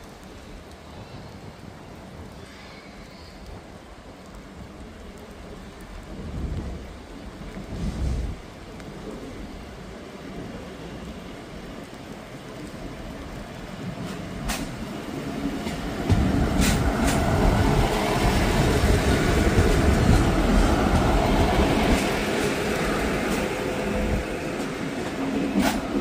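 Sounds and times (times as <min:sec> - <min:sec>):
wheels rumbling on rails: 0:00.0 - 0:26.0
train diesel engine running: 0:14.1 - 0:26.0.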